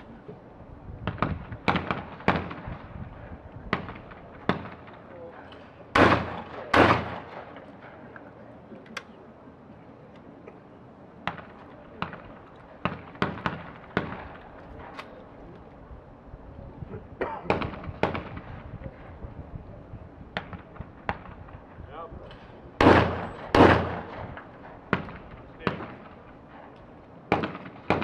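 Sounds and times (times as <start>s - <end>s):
shotgun shots: 1.1s - 2.9s, 3.7s - 8.1s, 11.2s - 15.1s, 17.4s - 18.6s, 22.8s - 28.0s.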